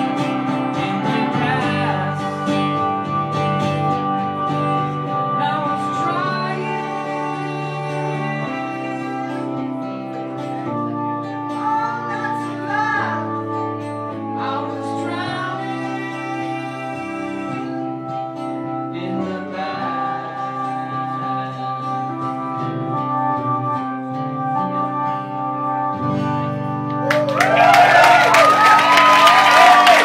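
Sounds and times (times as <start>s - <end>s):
acoustic song chords: 0.0s - 30.0s
audience applause and cheers: 27.0s - 30.0s.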